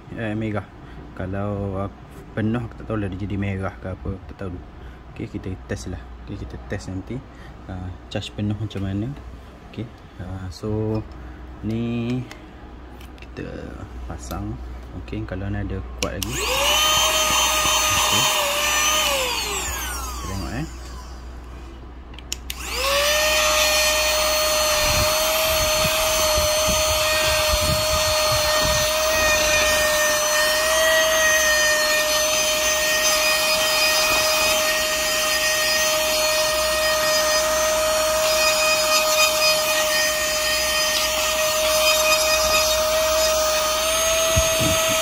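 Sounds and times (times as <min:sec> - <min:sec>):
mini vacuum cleaner motor whine: 0:16.2 - 0:21.3, 0:22.4 - 0:45.0.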